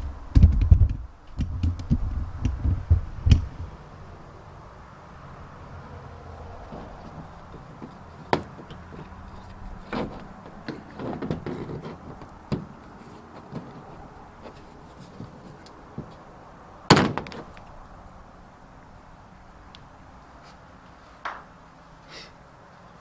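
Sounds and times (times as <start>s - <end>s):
plastic tool scraping: 6.7s - 16.2s.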